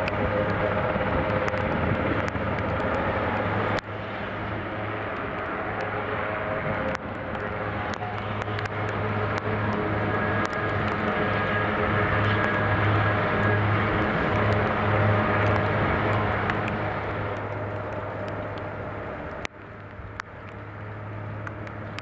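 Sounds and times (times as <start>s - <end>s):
helicopter engine and rotor hum: 0.0s - 22.0s.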